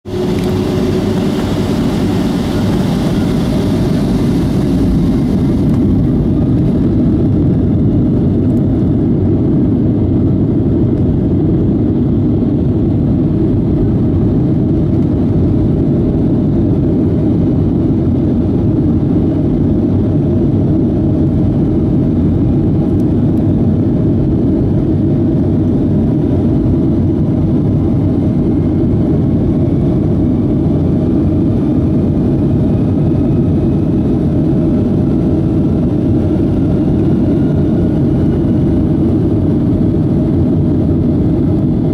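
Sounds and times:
runway rumble: 0.0s - 9.2s
faint rising jet whine: 0.1s - 7.8s
jet engines rumbling inside cabin: 0.1s - 41.9s.

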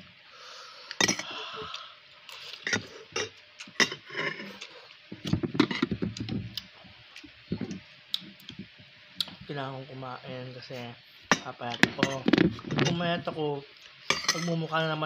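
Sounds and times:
slurping and chewing: 1.6s - 8.6s.

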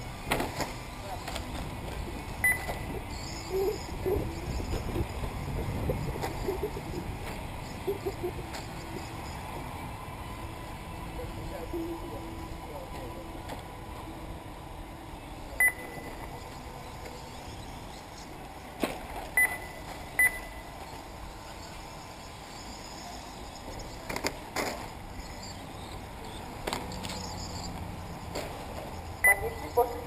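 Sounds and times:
outdoor background hum: 0.0s - 30.0s
short high electronic beeps: 2.4s - 3.5s, 15.6s - 16.2s, 19.4s - 20.6s, 29.2s - 29.6s.

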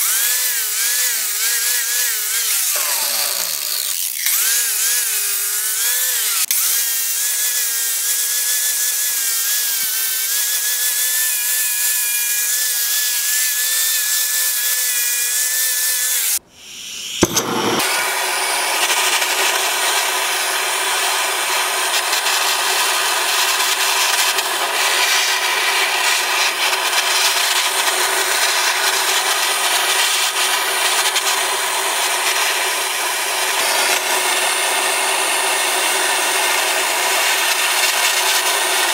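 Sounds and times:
gas torch flame hissing: 16.5s - 22.2s.

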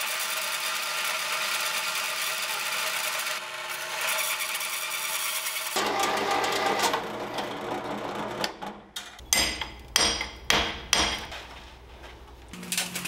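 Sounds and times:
hole saw grinding through metal: 0.0s - 8.5s
sharp knocks: 9.2s - 11.4s.

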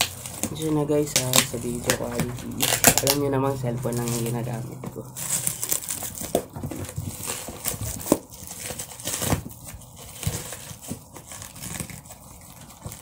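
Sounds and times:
plastic wrap crinkling: 0.0s - 13.0s.

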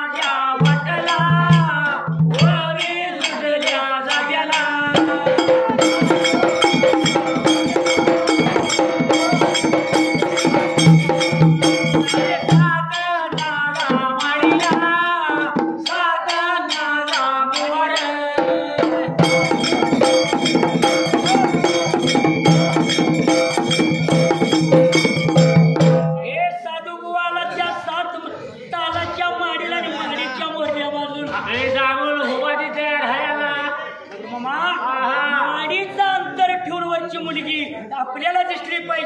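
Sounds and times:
man singing into a microphone: 0.0s - 9.8s, 12.0s - 25.5s, 26.3s - 39.0s
jingling hand percussion: 0.0s - 26.6s
drums beating: 0.5s - 26.6s.

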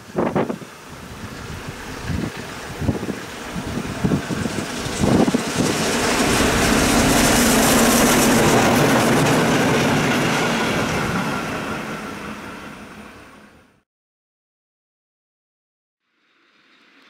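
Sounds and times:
train wheels rumbling on rails: 0.0s - 13.4s.

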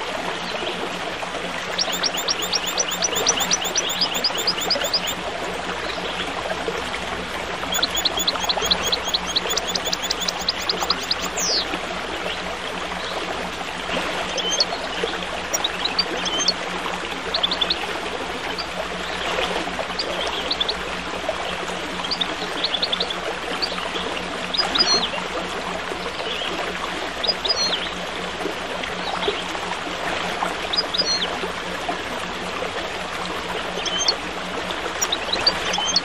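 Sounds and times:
stream babbling: 0.0s - 36.0s
songbirds chirping: 1.7s - 5.2s, 7.6s - 11.7s.

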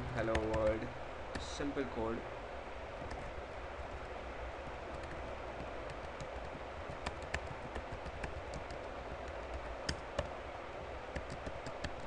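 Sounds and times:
low hum and hiss: 0.0s - 12.0s
keyboard typing clicks: 0.2s - 0.8s, 4.9s - 10.3s, 11.1s - 12.0s.

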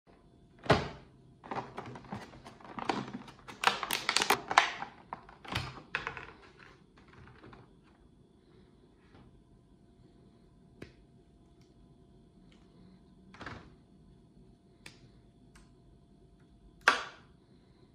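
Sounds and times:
plastic crackling and clicking: 1.4s - 7.7s.

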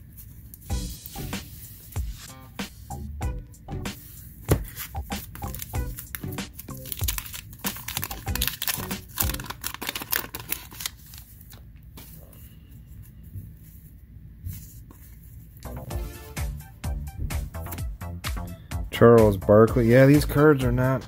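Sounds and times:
paper wrapper tearing and crinkling: 4.6s - 11.6s.

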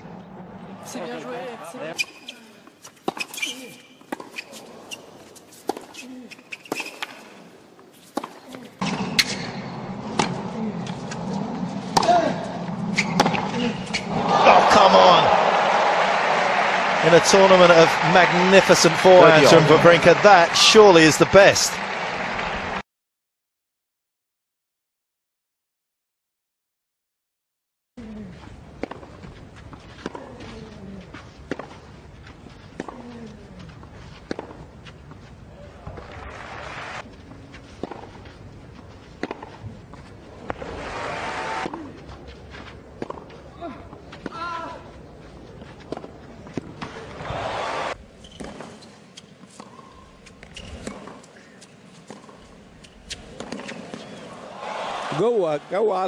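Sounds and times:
murmur of stadium crowd: 0.0s - 2.0s, 9.6s - 22.8s, 35.5s - 38.1s, 39.4s - 48.6s, 53.2s - 56.0s
racket striking tennis ball: 3.0s - 6.0s, 8.0s - 14.2s, 37.8s - 38.1s, 39.2s - 39.7s, 52.0s - 54.4s
tennis ball struck by rackets: 11.9s - 12.3s, 34.3s - 34.6s, 37.8s - 38.1s, 39.2s - 39.6s, 53.0s - 54.2s.

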